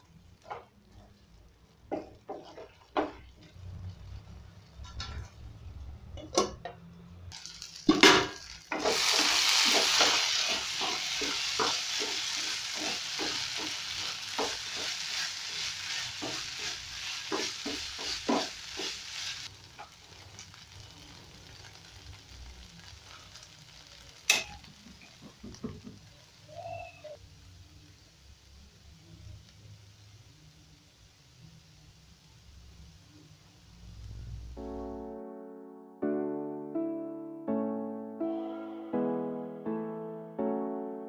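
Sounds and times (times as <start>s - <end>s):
tripe sizzling in a frying pan: 0.0s - 6.0s, 7.2s - 35.1s
spoon knocking on a pan: 1.9s - 3.2s, 17.3s - 19.0s, 25.2s - 26.0s
spoon scraping a pan: 1.9s - 3.5s, 8.0s - 19.9s.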